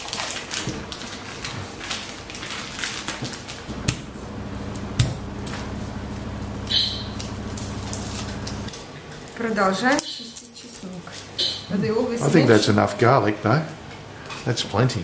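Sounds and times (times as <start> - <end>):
plastic packaging crinkling: 0.0 - 4.8
low steady hum: 3.7 - 8.7.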